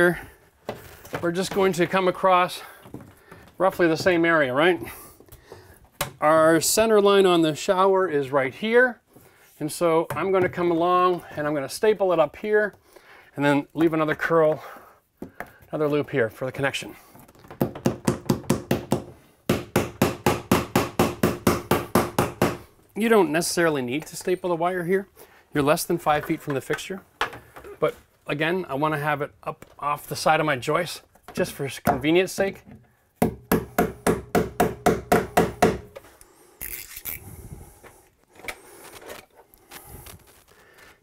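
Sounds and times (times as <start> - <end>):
hammer striking staples into wood: 17.6 - 22.7, 33.2 - 36.0
hammer tapping staple into wood: 33.2 - 36.0.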